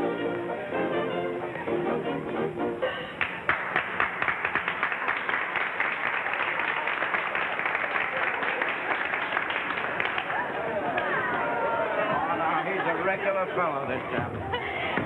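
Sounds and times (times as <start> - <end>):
crowd applauding: 3.1 - 15.0.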